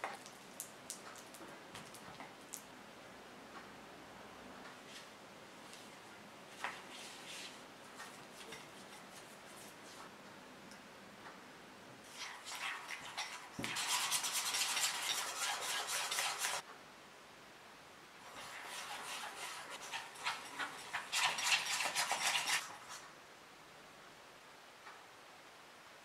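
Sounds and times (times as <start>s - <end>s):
wire whisk rattling in a bowl: 12.2s - 16.6s, 18.3s - 22.7s.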